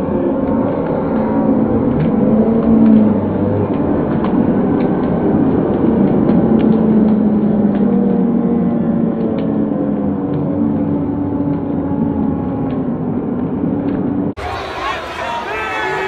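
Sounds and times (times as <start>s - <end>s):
crowd cheering and yelling: 14.4s - 16.0s.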